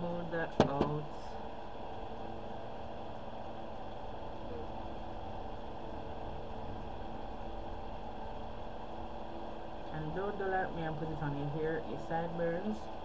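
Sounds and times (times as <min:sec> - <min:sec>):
electric fan humming: 0:00.0 - 0:13.0.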